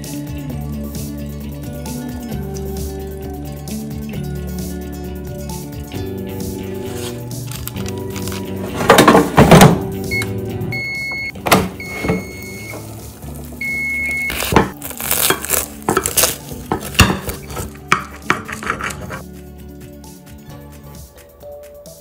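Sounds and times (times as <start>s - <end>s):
background music: 0.0s - 22.0s
short electronic beeps: 10.1s - 12.8s, 13.6s - 14.4s
air fryer drawer clunk: 11.1s - 12.9s
knife cutting crisp pastry: 14.3s - 19.2s.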